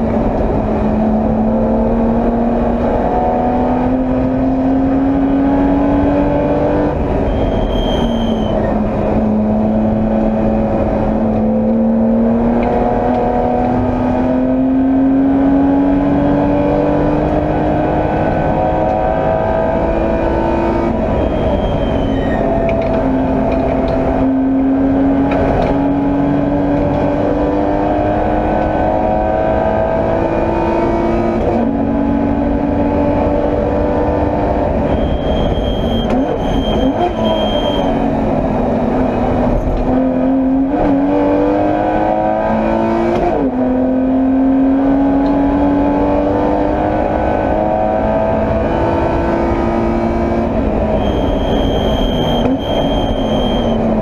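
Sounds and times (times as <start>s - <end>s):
racing car engine revving: 0.0s - 54.0s
brief high squeal: 7.2s - 8.8s, 21.2s - 22.6s, 34.9s - 37.9s, 51.0s - 53.8s.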